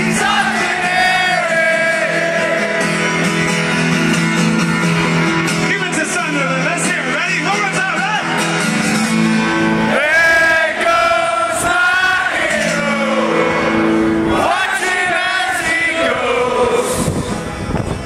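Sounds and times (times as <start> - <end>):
crowd singing along: 0.0 - 4.3, 8.6 - 17.8
live rock song: 0.0 - 18.0.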